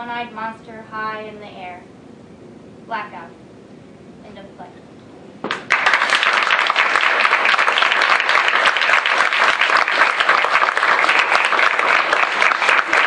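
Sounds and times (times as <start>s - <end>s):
audience applauding: 5.5s - 13.0s.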